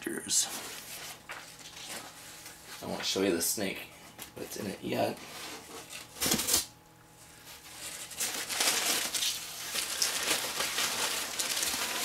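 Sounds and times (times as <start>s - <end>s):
packing paper rustling: 7.6s - 12.0s.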